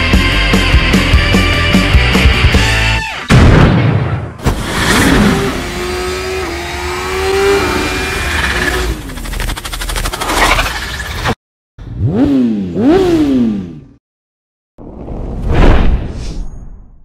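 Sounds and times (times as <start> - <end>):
engine revving: 4.5 - 14.0
whooshes: 14.8 - 17.0.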